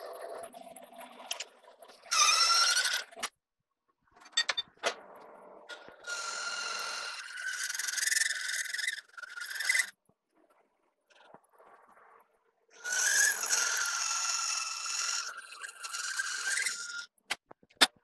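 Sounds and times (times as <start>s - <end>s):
lathe cutting steel whine: 5.7s - 9.9s, 12.8s - 17.1s.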